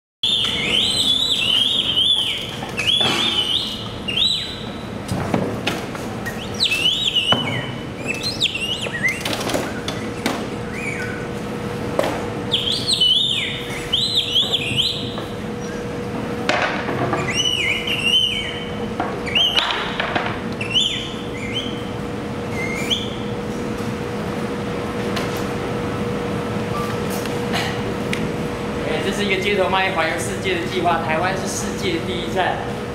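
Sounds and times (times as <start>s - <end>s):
chirping whistles: 0.2s - 4.9s, 6.2s - 11.3s, 12.5s - 15.9s, 17.2s - 20.0s, 20.6s - 23.3s.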